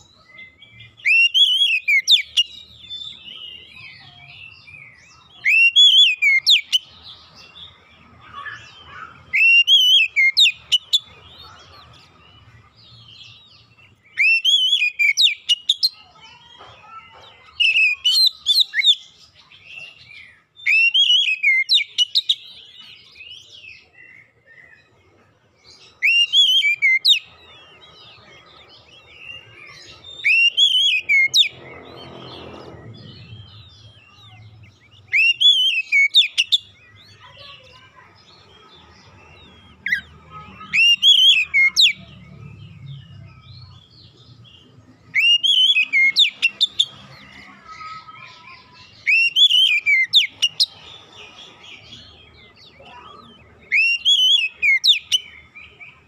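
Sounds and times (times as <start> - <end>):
bird singing whistled phrases: 0.7 - 6.9, 8.4 - 11.1, 14.1 - 16.0, 20.1 - 22.4, 26.0 - 27.3, 29.7 - 31.5, 35.0 - 37.2, 40.7 - 42.0, 45.1 - 47.0, 49.0 - 50.7, 53.7 - 55.4.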